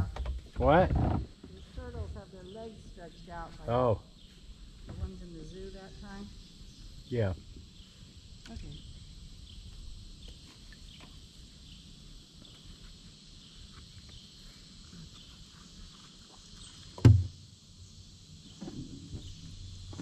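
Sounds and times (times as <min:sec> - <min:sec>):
insects chirping: 0:00.0 - 0:20.0
paddle knocking a kayak: 0:17.0 - 0:17.4.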